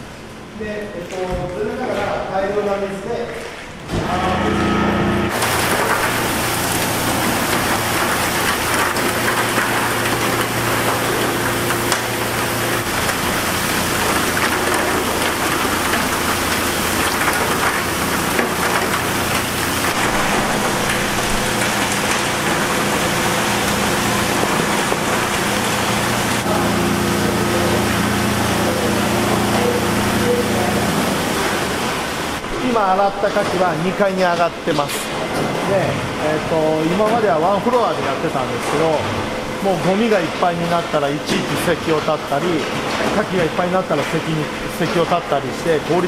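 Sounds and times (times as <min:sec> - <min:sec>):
low machine hum: 0:00.0 - 0:46.0
water spraying over tumbling oysters: 0:05.3 - 0:32.4.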